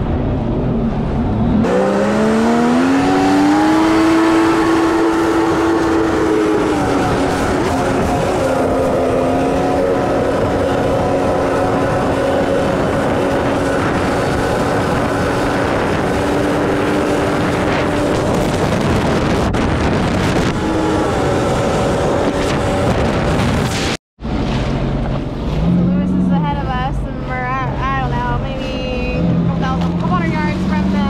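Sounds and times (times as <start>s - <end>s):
wind: 0.0s - 31.0s
jet ski engine revving: 1.2s - 23.6s.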